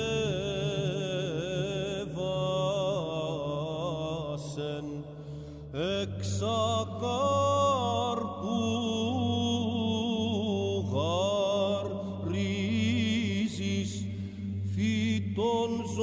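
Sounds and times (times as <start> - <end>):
low held vocal drone: 0.0 - 16.0.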